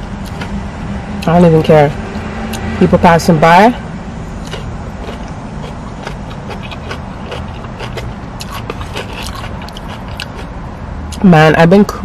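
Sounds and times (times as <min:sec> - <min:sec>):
person eating: 0:00.0 - 0:00.6, 0:04.3 - 0:10.6.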